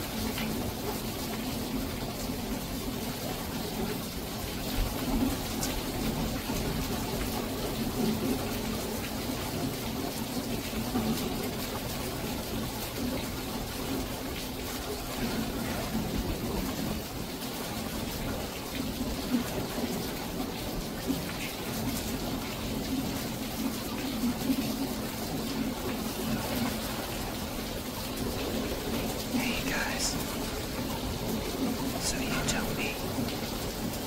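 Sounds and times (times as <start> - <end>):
steady rain hiss: 0.0 - 34.0.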